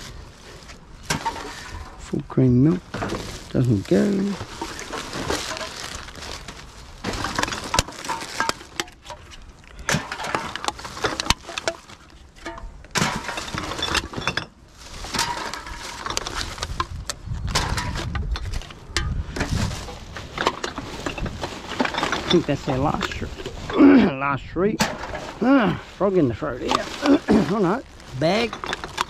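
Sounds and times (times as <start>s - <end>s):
plastic bag rustling: 0.0s - 24.1s, 24.9s - 29.0s
glass bottles clinking: 7.1s - 9.2s, 9.9s - 16.3s, 20.2s - 23.3s, 26.6s - 29.0s.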